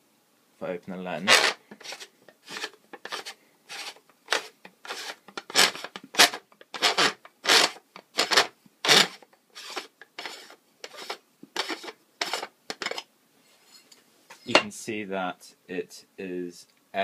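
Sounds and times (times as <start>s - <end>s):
rubbing or scraping strokes: 1.2s - 14.6s.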